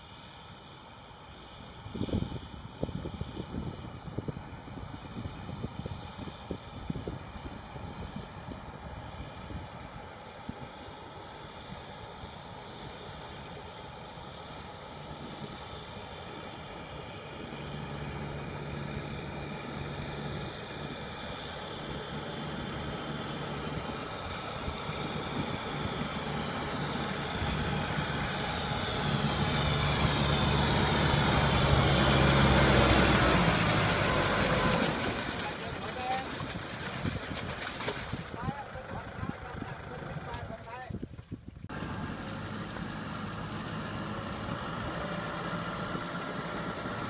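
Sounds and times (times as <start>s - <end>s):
heavy vehicle engine running: 9.0s - 36.8s, 41.7s - 47.0s.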